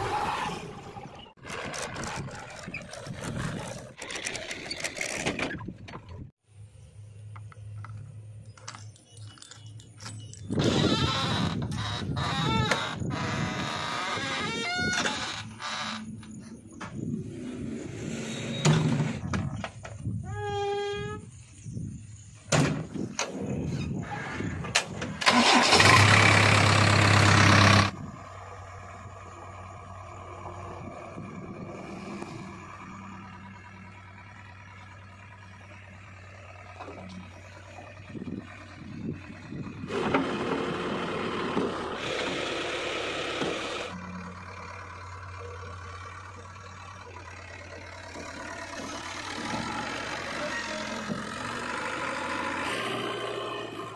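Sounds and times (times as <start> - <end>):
diesel engine starting: 21.3 - 53.9.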